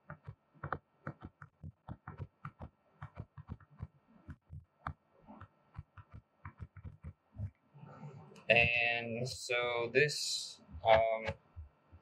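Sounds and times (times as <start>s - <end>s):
stylus tapping on touchscreen: 0.0s - 7.6s.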